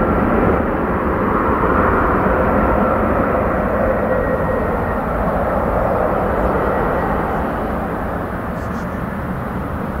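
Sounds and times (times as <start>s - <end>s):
jet engines at takeoff power: 0.0s - 10.0s
faint whining tones: 2.9s - 10.0s.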